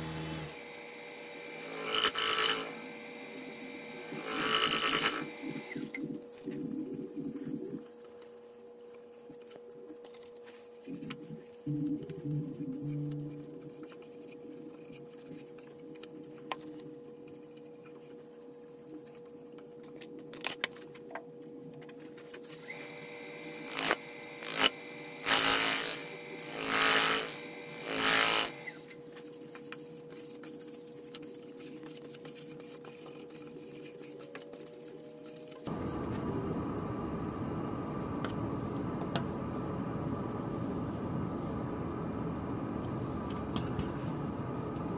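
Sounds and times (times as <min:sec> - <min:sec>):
wood lathe humming: 0:00.0 - 0:06.0, 0:22.6 - 0:28.8
sandpaper rasping on spinning wood: 0:22.8 - 0:28.7.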